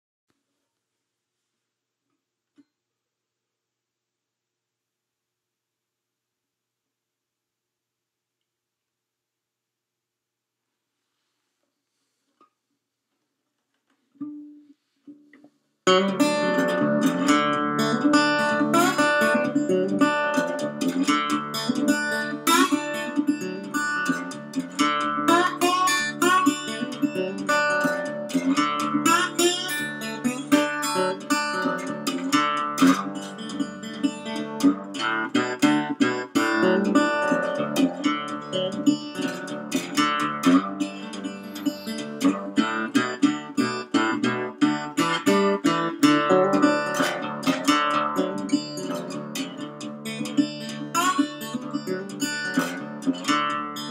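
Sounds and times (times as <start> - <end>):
slide resonator guitar blues: 14.2 - 53.9.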